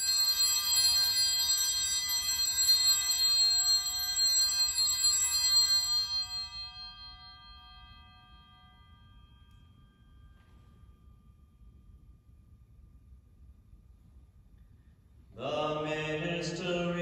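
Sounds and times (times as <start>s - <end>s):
altar bells jingling: 0.0s - 11.8s.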